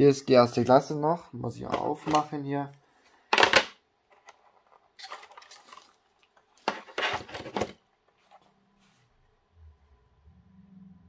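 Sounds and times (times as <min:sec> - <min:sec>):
plastic rattling and scraping: 0:03.3 - 0:08.5
plastic rustle: 0:04.4 - 0:08.5
plastic tray scraping and clattering: 0:06.6 - 0:08.5.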